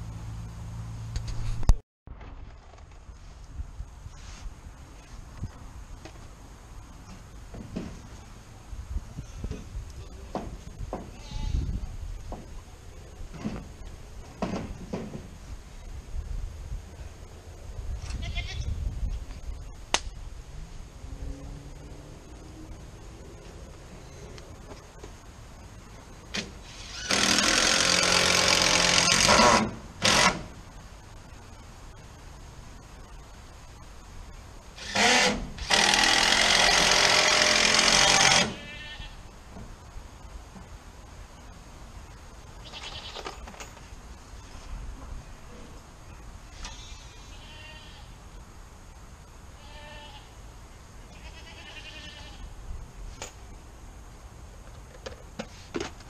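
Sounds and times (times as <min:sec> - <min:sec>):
goats bleating: 0:46.7 - 0:48.1, 0:51.1 - 0:52.4.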